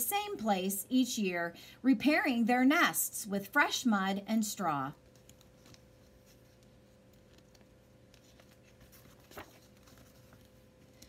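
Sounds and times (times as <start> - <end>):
faint steady hum: 0.0 - 11.0
book page turning: 5.0 - 11.0.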